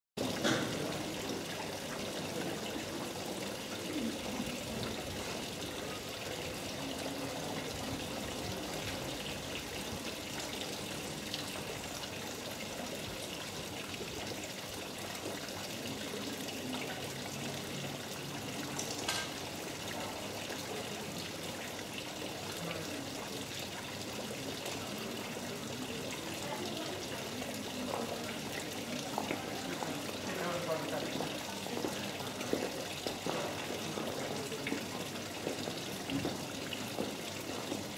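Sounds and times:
fountain water trickling: 0:00.2 - 0:37.9.

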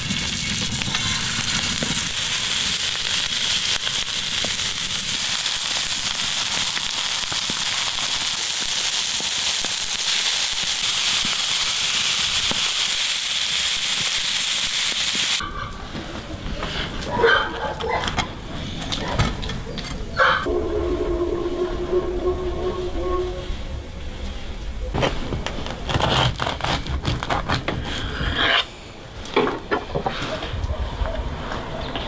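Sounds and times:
beef patties sizzling in a pan: 0:00.0 - 0:15.4.

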